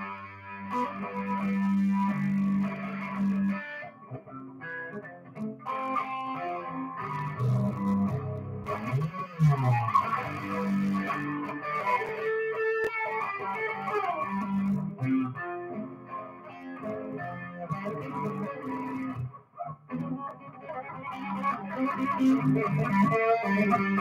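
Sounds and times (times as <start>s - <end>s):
electric guitar playing: 0.0s - 24.0s.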